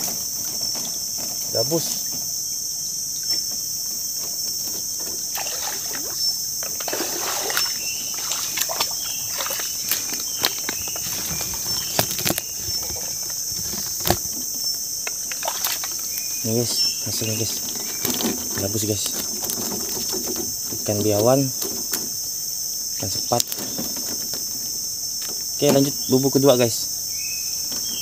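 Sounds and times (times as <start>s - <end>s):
insects droning: 0.0s - 28.0s
wading through shallow water: 5.2s - 20.2s.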